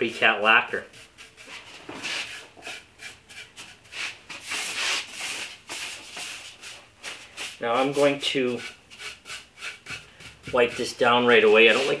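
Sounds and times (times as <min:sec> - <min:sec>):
brush strokes on wood: 0:00.0 - 0:12.0.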